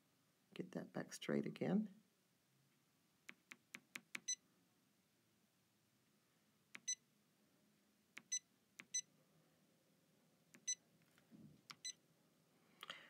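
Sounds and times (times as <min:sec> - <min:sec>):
stylus tapping touchscreen: 0:03.3 - 0:04.4, 0:06.7 - 0:07.0, 0:08.2 - 0:09.1, 0:10.6 - 0:10.8, 0:11.6 - 0:12.0.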